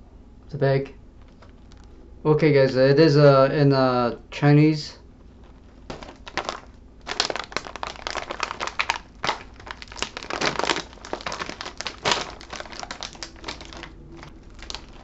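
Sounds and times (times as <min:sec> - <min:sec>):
plastic snack bag crinkling: 0:01.2 - 0:02.0, 0:05.3 - 0:15.0.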